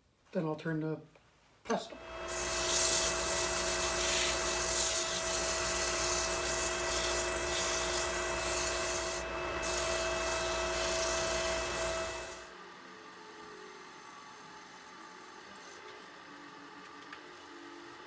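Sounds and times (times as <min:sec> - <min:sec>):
lathe motor hum: 0:02.0 - 0:18.0
sandpaper hissing on wood: 0:02.3 - 0:12.4.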